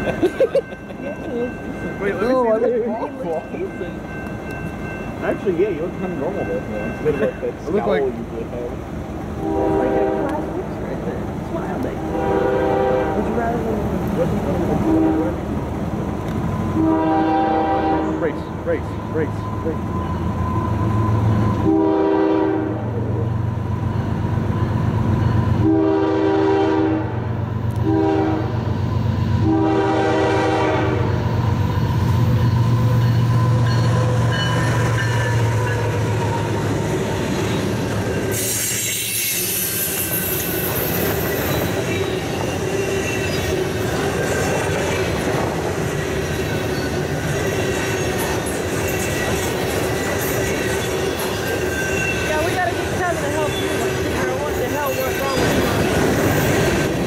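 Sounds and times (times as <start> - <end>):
diesel locomotive engine rumble: 0.0 - 57.0
locomotive passing rush: 0.0 - 57.0
railcars clattering over rails: 0.0 - 57.0
train horn: 9.4 - 10.5, 12.0 - 13.4, 14.8 - 15.4, 16.7 - 18.4, 21.4 - 23.1, 25.5 - 28.6, 29.4 - 31.2, 38.3 - 40.6
faint wheel squeal: 37.2 - 45.0.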